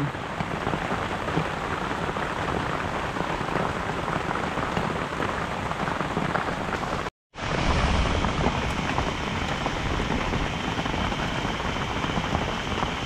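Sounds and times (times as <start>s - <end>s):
rain falling: 0.0s - 13.0s.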